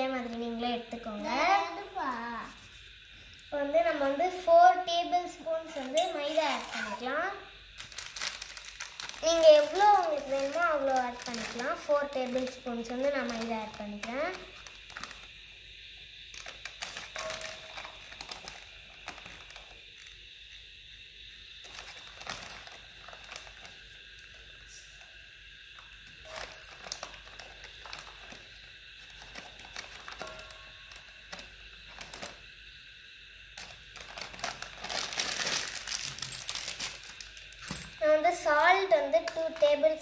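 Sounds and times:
plastic packet crinkling: 7.8 - 15.3, 16.4 - 20.1, 21.6 - 23.8, 26.2 - 32.4, 33.6 - 37.7.

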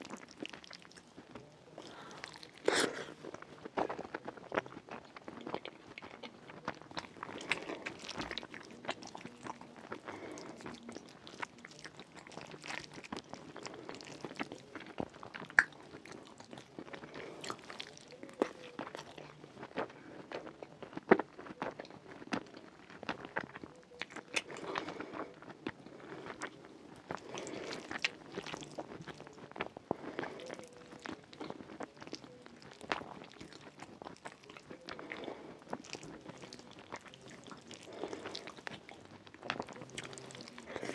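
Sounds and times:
wet chewing with mouth clicks: 0.0 - 40.9.

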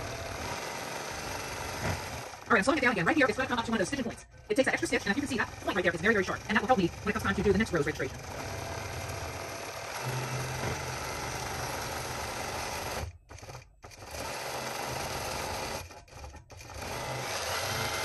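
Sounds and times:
low motor hum: 0.0 - 18.0
quilting machine needle chatter: 0.0 - 18.0.

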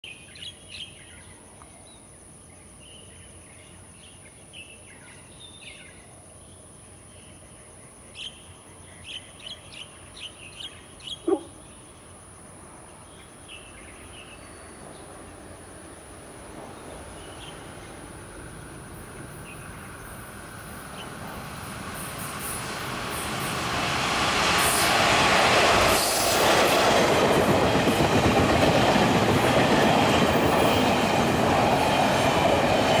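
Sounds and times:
background hiss: 0.1 - 26.8
birds chirping: 8.2 - 12.1
train rumble: 14.6 - 33.0.

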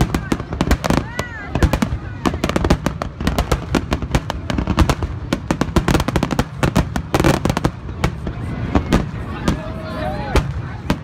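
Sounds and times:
fireworks bursting: 0.0 - 11.0.

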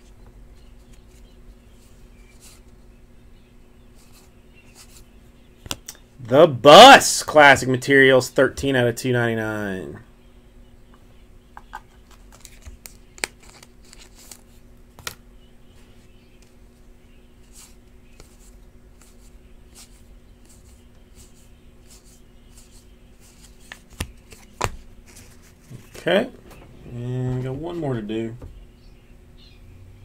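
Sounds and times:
faint steady hum: 0.0 - 30.0
card snaps: 23.7 - 24.8.

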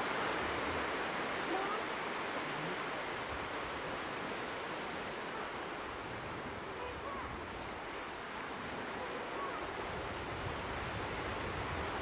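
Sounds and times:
sea surf washing onto beach: 0.0 - 12.0
wind buffeting microphone: 8.5 - 12.0.

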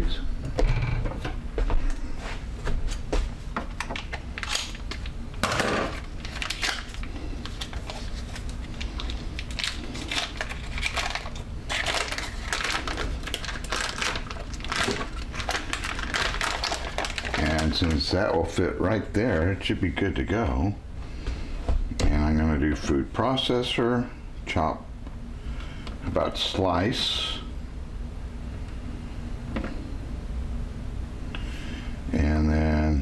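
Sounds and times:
wrapper crinkling and rustling: 4.0 - 5.2, 5.8 - 18.4.

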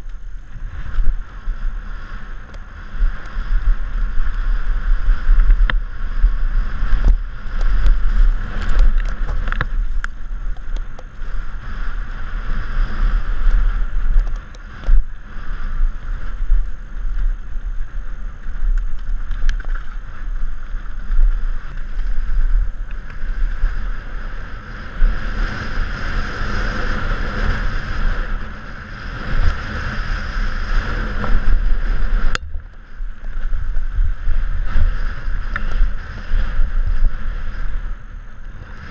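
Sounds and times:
tyre noise on dirt: 0.0 - 38.9
wind buffeting camera: 0.0 - 38.9
bike knocks and rattles: 18.3 - 23.7.

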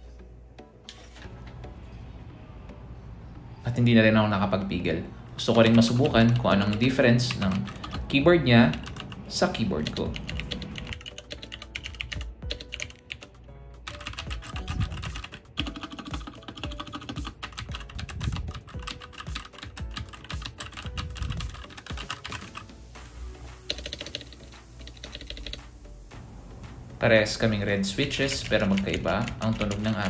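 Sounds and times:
background music: 0.0 - 30.0
fast mechanical keyboard typing: 5.5 - 22.7, 23.7 - 25.6, 28.0 - 30.0.

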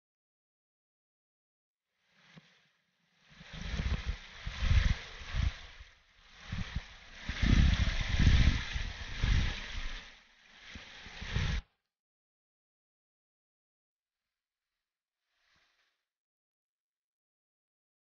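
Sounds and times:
wind buffeting microphone: 3.4 - 11.6
stream trickling over rocks: 6.5 - 11.4.

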